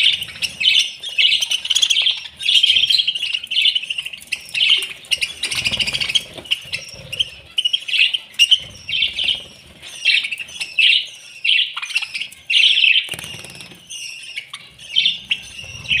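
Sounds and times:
budgerigars chirping: 0.0s - 16.0s
wings flapping: 13.1s - 13.8s.

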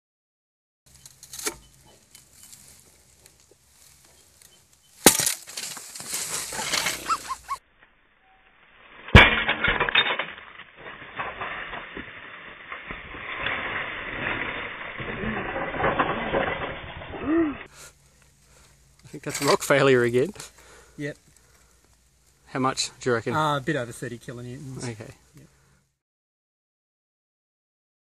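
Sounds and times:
rock fragments rattling: 0.9s - 7.6s, 8.7s - 25.1s
rock cracking: 1.0s - 7.5s, 8.8s - 22.7s.

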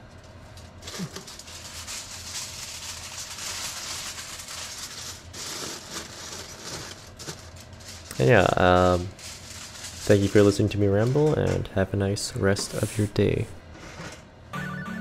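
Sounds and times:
aluminum foil crinkling: 0.0s - 11.7s.

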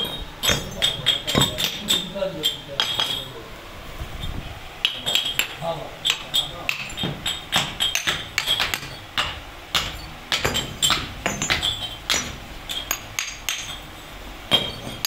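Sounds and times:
hammer knocking on metal: 0.0s - 2.2s, 4.8s - 13.8s.

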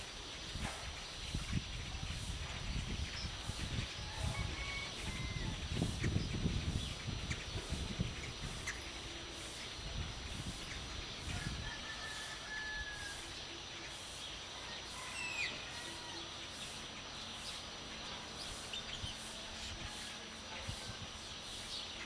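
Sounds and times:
birds chirping: 0.0s - 22.0s
steady background hiss: 0.0s - 22.0s
distant rooster crowing: 4.0s - 6.0s, 11.2s - 16.9s, 19.2s - 21.3s.

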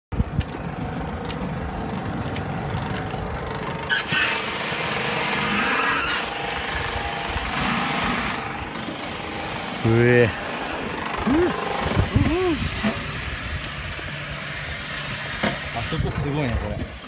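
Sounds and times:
roller coaster car rumbling on track: 0.1s - 17.0s
sharp mechanical clicks: 0.2s - 8.0s, 13.5s - 14.1s, 16.3s - 16.8s.

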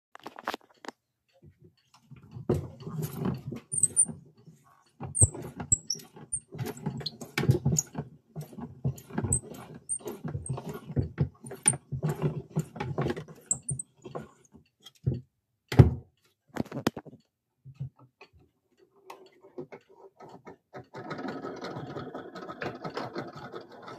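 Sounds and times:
gramophone knocks and scrapes: 3.0s - 4.1s, 5.1s - 7.9s, 13.5s - 13.9s
small high squeaks: 3.7s - 4.1s, 5.2s - 7.9s, 13.5s - 13.9s.

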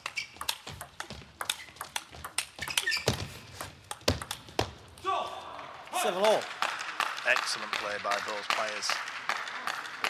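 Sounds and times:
table tennis ball clicking: 0.0s - 4.5s.

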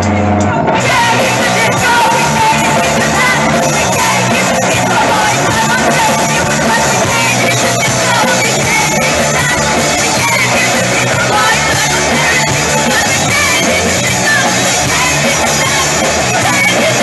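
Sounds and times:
live rock band: 0.0s - 17.0s
women singing: 0.8s - 17.0s.

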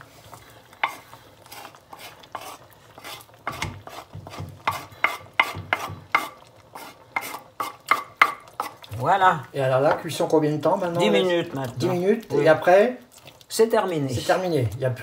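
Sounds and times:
wooden spoon knocking on cutting board: 3.5s - 6.3s, 7.9s - 8.4s, 9.8s - 10.1s.

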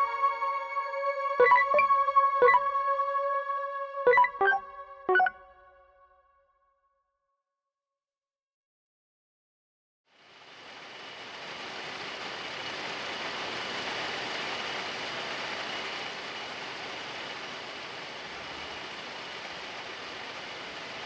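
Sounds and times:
faint high tone: 1.1s - 5.6s.

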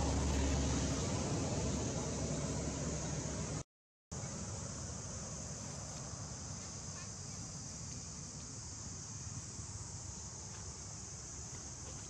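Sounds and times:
low rumble: 0.0s - 3.6s
insect chorus high-pitched hiss: 4.2s - 12.0s.

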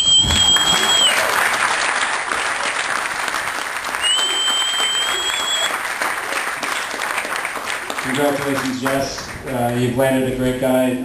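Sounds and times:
high whistle: 0.0s - 1.4s, 4.0s - 5.8s
people clapping: 0.0s - 10.2s.

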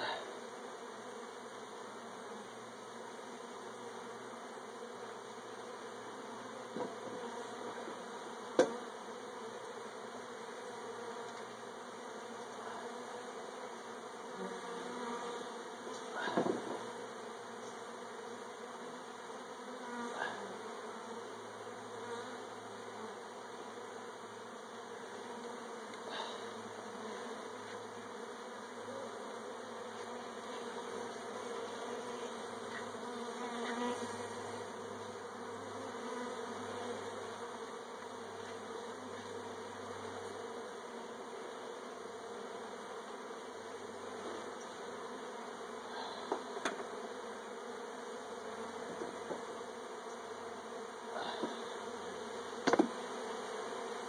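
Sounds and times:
honeybees buzzing: 0.0s - 54.0s
light knocks: 52.6s - 52.9s.

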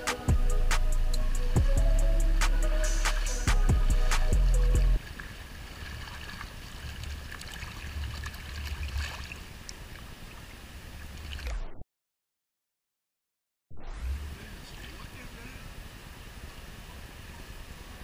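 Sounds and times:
music playing: 0.0s - 5.0s
creek water running: 0.0s - 11.5s, 14.2s - 18.0s
low rumble: 0.3s - 5.0s, 13.7s - 14.9s.

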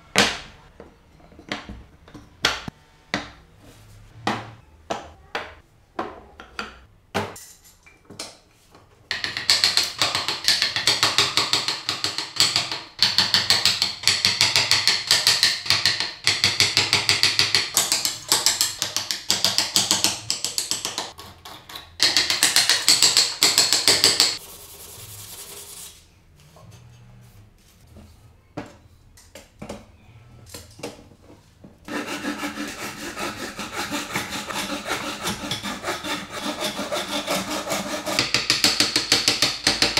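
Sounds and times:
hand saw cutting: 31.9s - 38.4s
chisel scraping wood: 31.9s - 38.5s.

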